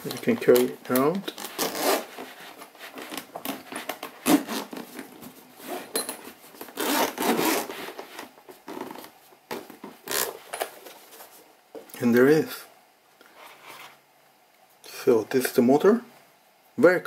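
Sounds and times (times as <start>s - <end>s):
case zipper rasping open: 1.4s - 2.2s, 3.0s - 4.8s, 6.7s - 7.7s, 10.1s - 10.3s.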